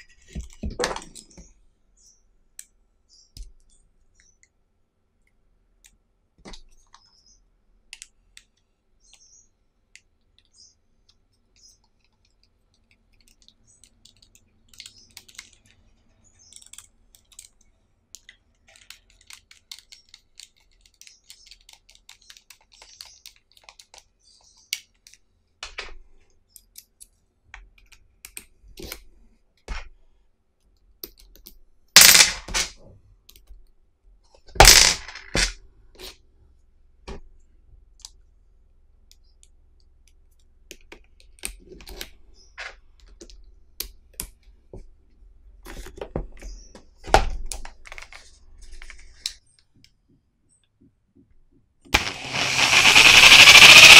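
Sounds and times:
rapid clicking: 52.0s - 53.9s.

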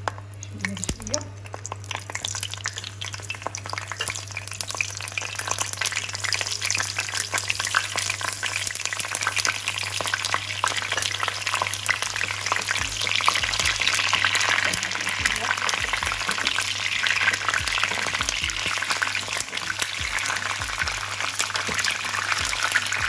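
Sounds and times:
peppers sizzling in hot oil: 0.0s - 23.0s
spoon knocking in pan: 12.2s - 23.0s.

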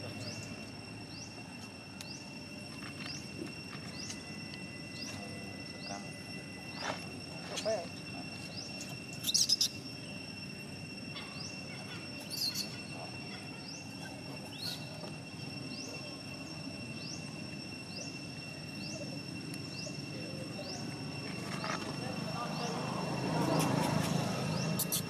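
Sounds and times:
high-pitched insect drone: 0.0s - 25.0s
shrill calls: 8.4s - 10.3s, 11.1s - 18.9s.

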